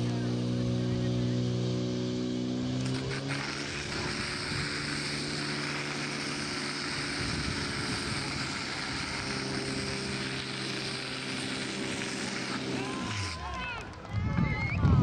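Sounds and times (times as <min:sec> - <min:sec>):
pump engine running hard: 0:00.0 - 0:13.6
hose jets spraying hiss: 0:02.8 - 0:13.4.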